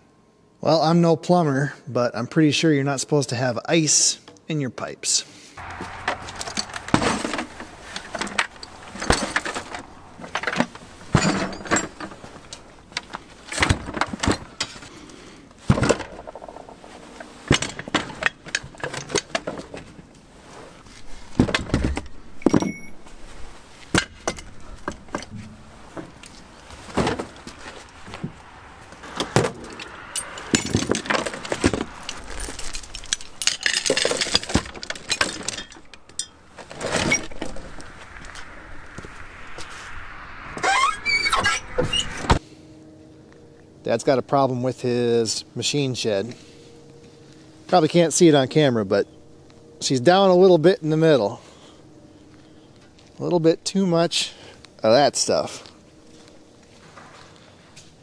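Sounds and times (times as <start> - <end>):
metal tools clanking: 5.7 - 12.7, 29.2 - 37.6
steel chain jangling: 6.0 - 9.9, 32.1 - 36.4.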